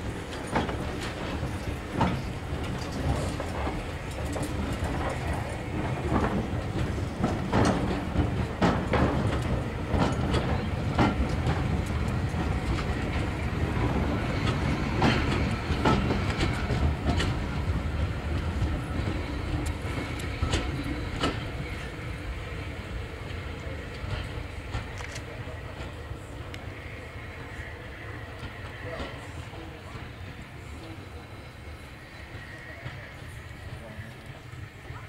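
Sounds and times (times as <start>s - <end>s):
train rumbling past: 0.0s - 35.0s
wheels clicking over rail joints: 0.2s - 22.0s.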